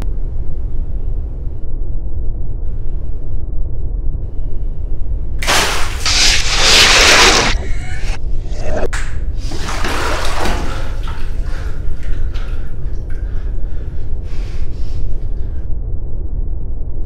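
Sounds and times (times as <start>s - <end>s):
steady low rumble: 0.0s - 9.5s, 10.8s - 17.0s
water splashing in a bathtub: 5.4s - 7.2s, 9.4s - 14.1s.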